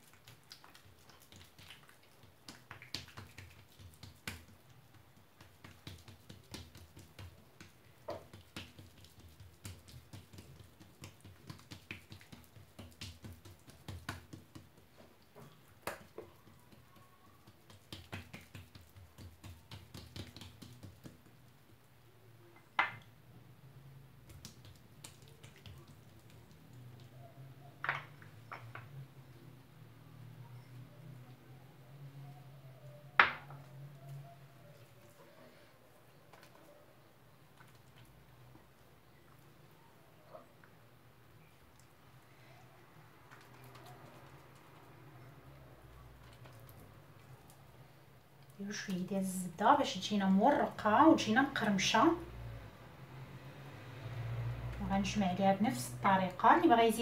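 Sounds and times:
hands slapping dough: 0.0s - 21.8s, 24.2s - 28.9s, 43.2s - 45.2s.

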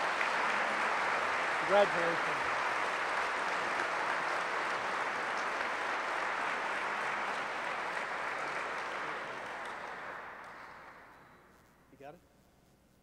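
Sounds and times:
audience applauding: 0.0s - 11.4s.

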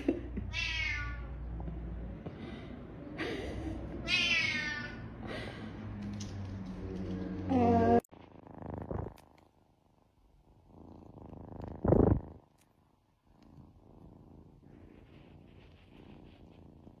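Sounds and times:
kitten purring: 7.0s - 17.0s.

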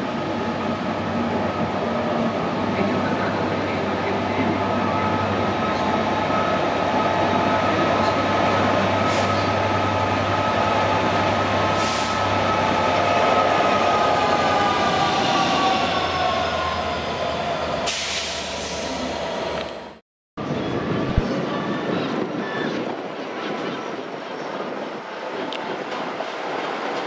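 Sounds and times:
locomotive whine: 0.0s - 22.6s.

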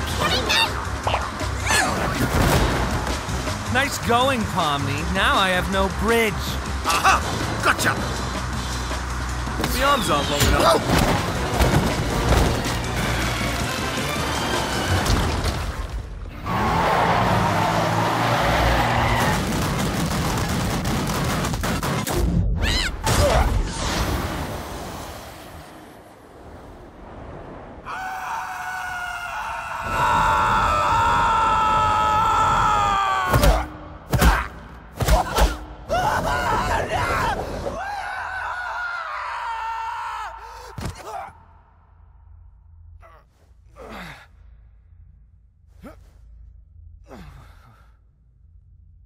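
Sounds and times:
cartoon character screaming: 22.6s - 23.4s.

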